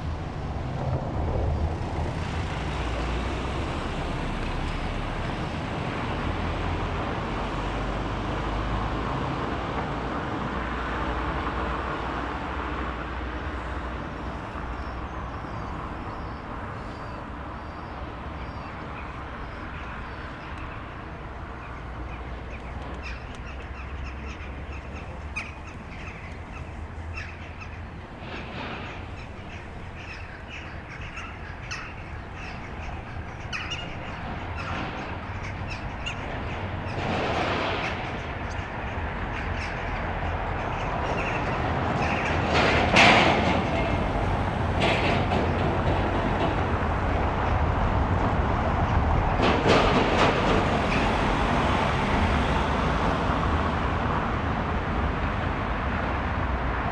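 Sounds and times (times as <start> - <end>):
vehicle engine and tyre noise: 0.0 - 56.9
small birds chirping: 14.3 - 37.0.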